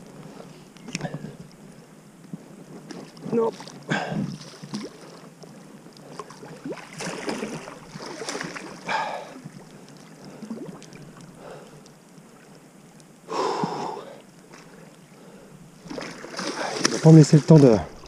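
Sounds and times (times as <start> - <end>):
fish splashing in water: 6.1 - 11.6, 15.8 - 17.1
person breathing hard: 13.3 - 15.6.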